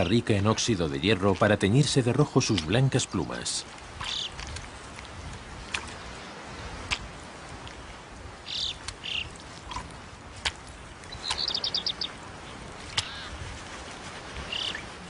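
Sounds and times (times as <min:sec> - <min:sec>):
birds chirping: 0:00.0 - 0:04.4, 0:08.3 - 0:09.4, 0:10.8 - 0:13.4, 0:14.4 - 0:15.0.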